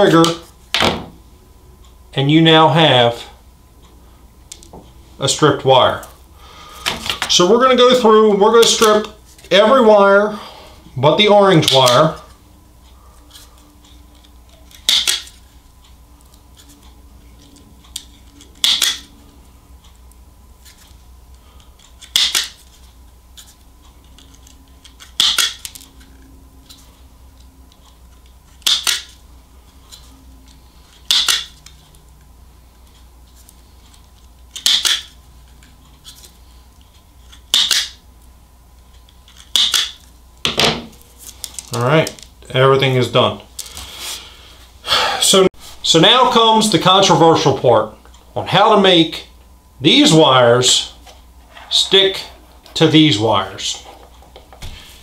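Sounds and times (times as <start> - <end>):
wire strippers snapping shut: 14.7 - 15.3, 18.5 - 19.1, 22.0 - 22.6, 24.9 - 25.8, 28.6 - 29.2, 31.1 - 31.5, 34.6 - 35.1, 37.5 - 38.0, 39.3 - 42.2.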